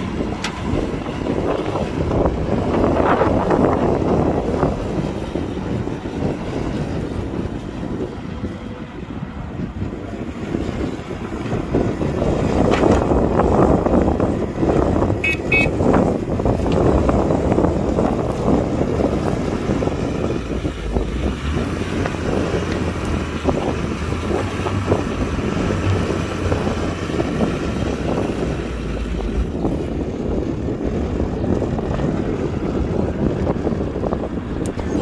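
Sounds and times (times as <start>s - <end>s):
diesel machinery engine running: 0.0s - 35.0s
wind on the microphone: 0.0s - 35.0s
high-pitched beeping: 15.2s - 15.7s.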